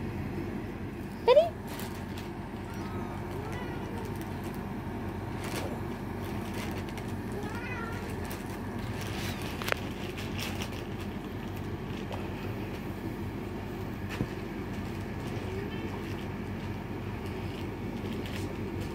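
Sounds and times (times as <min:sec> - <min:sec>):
kitten mewing: 0:07.3 - 0:08.5.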